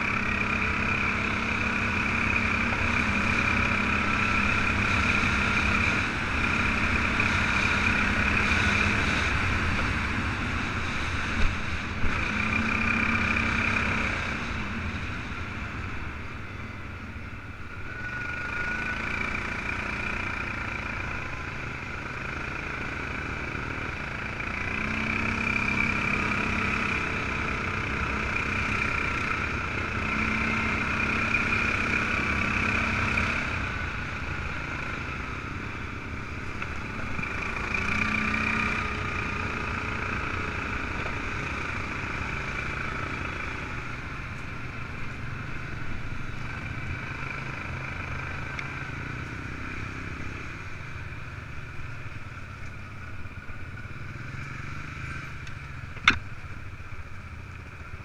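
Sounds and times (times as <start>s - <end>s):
quad bike engine revving: 0.0s - 15.1s, 17.9s - 44.6s.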